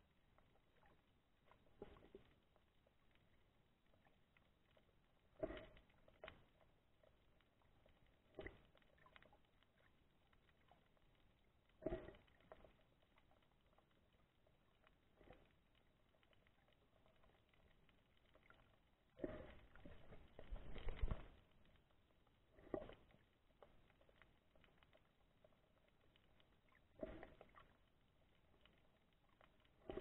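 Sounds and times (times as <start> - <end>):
muffled underwater noises: 4.7 - 6.3, 18.2 - 21.4.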